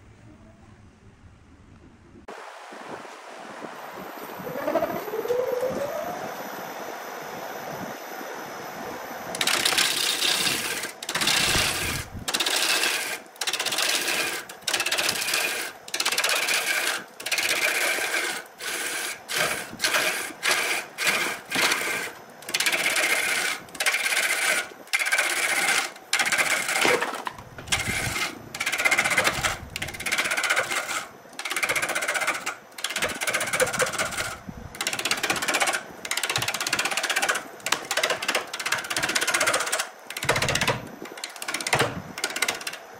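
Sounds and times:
lathe tool scraping wood: 9.4s - 42.7s.

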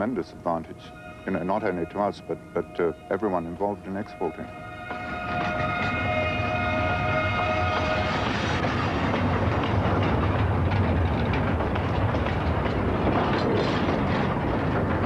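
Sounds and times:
train wheels rumbling on rails: 0.0s - 15.0s
wagons clattering: 0.0s - 15.0s.

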